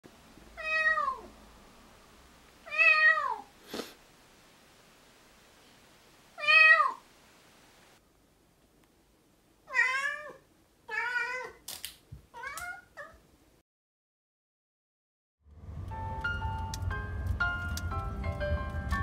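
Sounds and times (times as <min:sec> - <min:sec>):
kitten meowing: 0:12.4 - 0:13.2.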